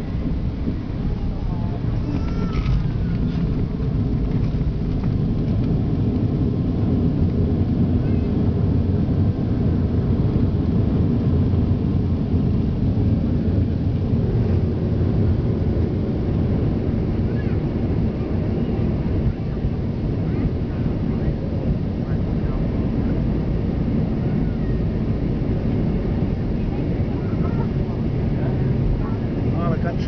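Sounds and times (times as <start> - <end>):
wheels rolling on runway: 0.0 - 7.6
jet engines rumbling: 0.0 - 30.0.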